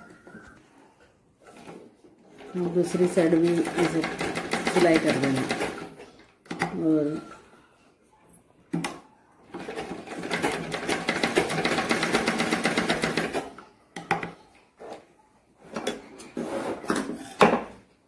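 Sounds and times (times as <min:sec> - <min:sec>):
sewing machine stitching: 0:01.4 - 0:06.0, 0:09.5 - 0:13.6.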